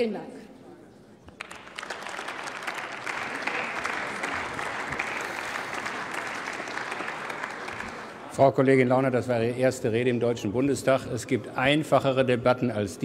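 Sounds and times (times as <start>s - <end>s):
crowd applauding: 1.4s - 8.5s.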